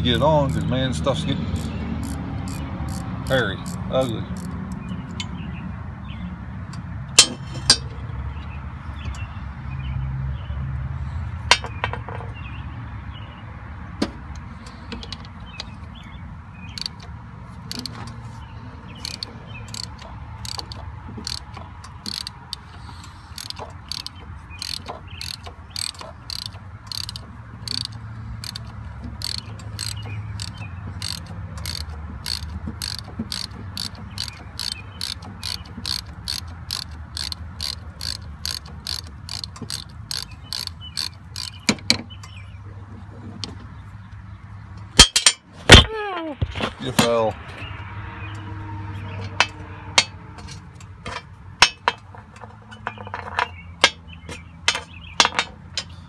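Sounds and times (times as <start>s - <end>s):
hand ratchet clicking: 1.6s - 4.6s, 16.7s - 18.0s, 19.0s - 41.8s.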